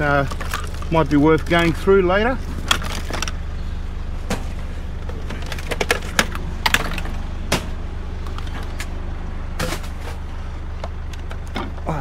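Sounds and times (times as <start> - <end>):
electronics clicking and clattering: 0.0 - 3.4, 4.2 - 9.0
low engine hum: 0.0 - 12.0.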